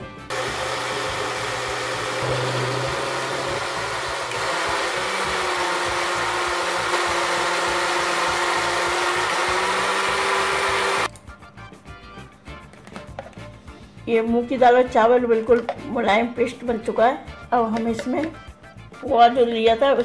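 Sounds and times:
mixer grinder running: 0.0 - 11.1.

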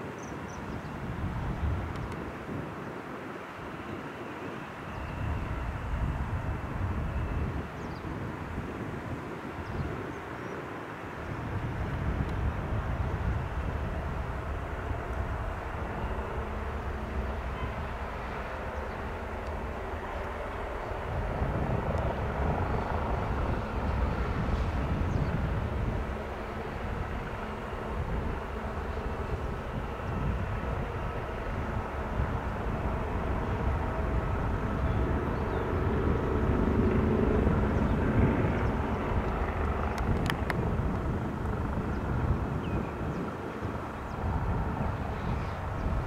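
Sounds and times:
helicopter rotor and turbine noise: 0.0 - 46.0.

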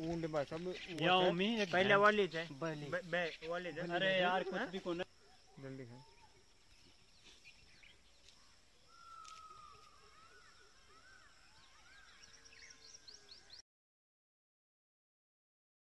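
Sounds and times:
faint bird chirps and whistles: 5.0 - 13.6.

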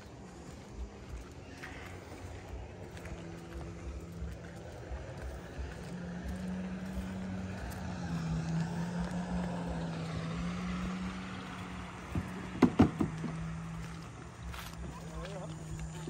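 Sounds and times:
car engine running at low revs: 0.0 - 16.0
sharp knocks: 12.2 - 13.3.

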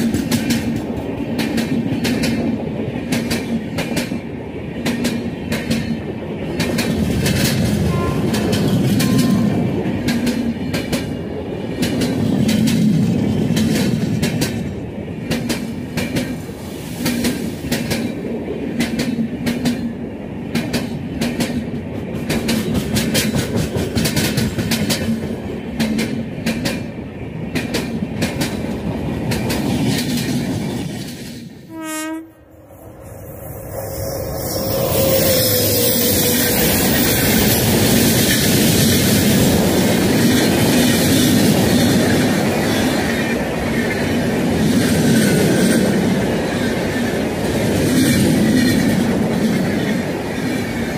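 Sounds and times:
train passing at speed: 0.0 - 50.9
train horn blast: 7.8 - 9.8, 31.7 - 32.7
wheels clicking over rail joints: 20.5 - 26.9.

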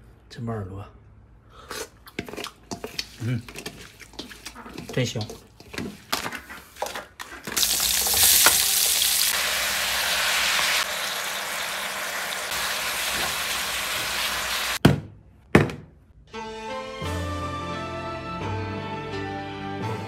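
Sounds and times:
beef and onions sizzling in a wok: 7.6 - 14.8.

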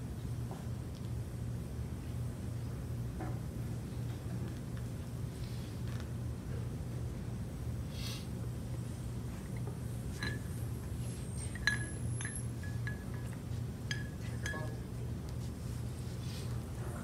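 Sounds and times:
glass containers clinking: 10.1 - 10.6, 11.3 - 14.8.

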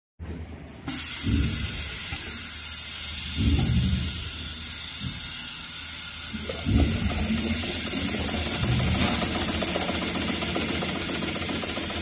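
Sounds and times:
low thumps: 6.5 - 9.4.

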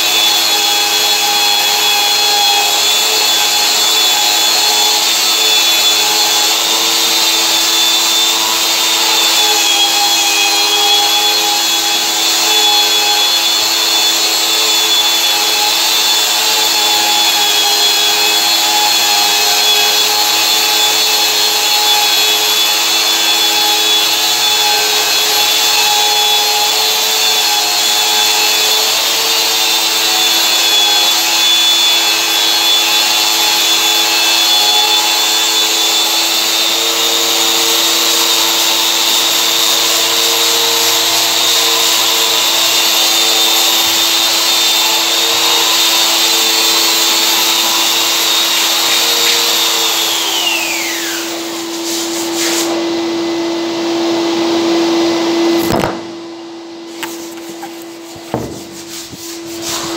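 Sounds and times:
dust extractor running: 0.0 - 58.6
drywall sander whining: 0.0 - 59.9.

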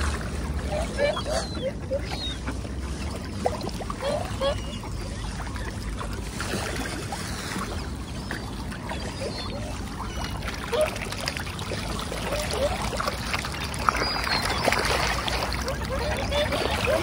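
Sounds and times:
water splashing and lapping: 0.0 - 17.0
bird calls: 0.7 - 2.5, 12.2 - 17.0.

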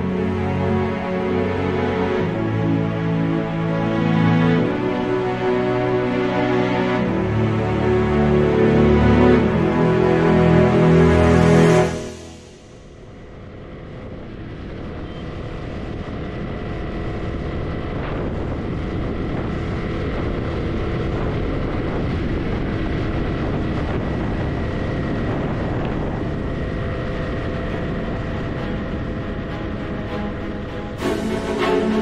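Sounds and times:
wind noise: 11.6 - 32.0
motorcycle engine running: 14.8 - 30.7.

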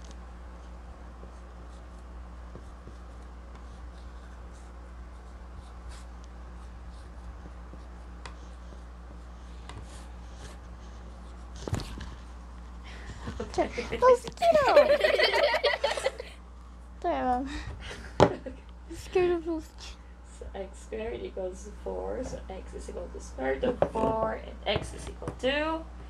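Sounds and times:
steady low hum: 0.0 - 26.0
marker writing on whiteboard: 0.6 - 11.7.

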